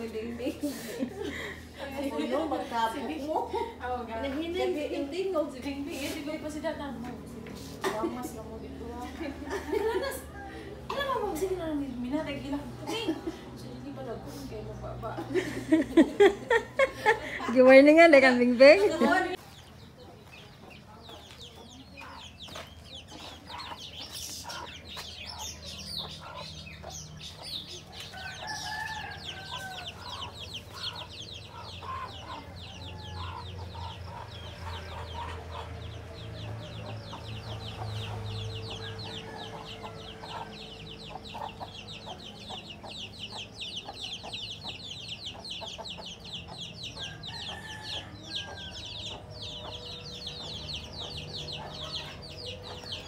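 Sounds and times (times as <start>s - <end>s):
chickens clucking: 0.0s - 53.0s
rooster crowing: 28.0s - 31.0s, 38.6s - 40.6s, 47.0s - 50.1s.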